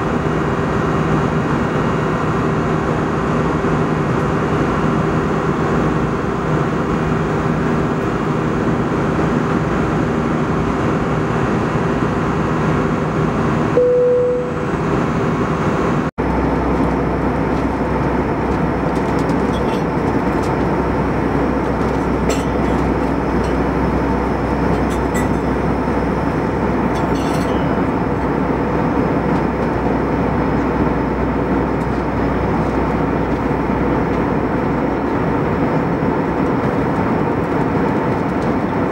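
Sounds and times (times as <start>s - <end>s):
aircraft engines droning: 0.0s - 38.9s
chime tone: 13.8s - 14.7s.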